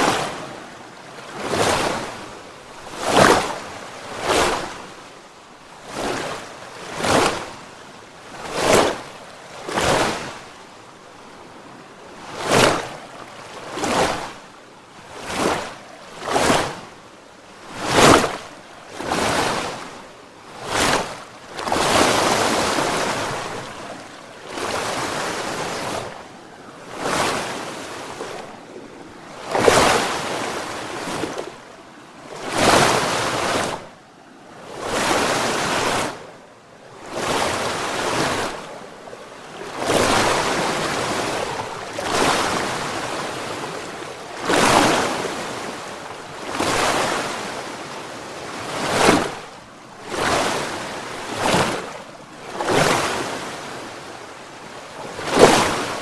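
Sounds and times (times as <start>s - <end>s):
rushing water surges: 0.0s - 56.0s
sharp water splash: 17.8s - 19.8s, 29.4s - 31.6s, 48.8s - 49.4s.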